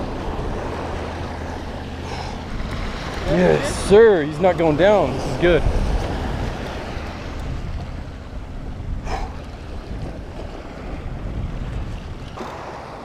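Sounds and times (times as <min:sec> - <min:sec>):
waves washing against rocks: 0:00.0 - 0:07.9
wind buffeting microphone: 0:00.0 - 0:13.0.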